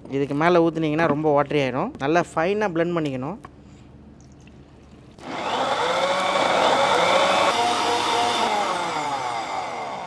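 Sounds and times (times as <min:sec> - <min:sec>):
electric blender whirring: 0:05.2 - 0:10.0.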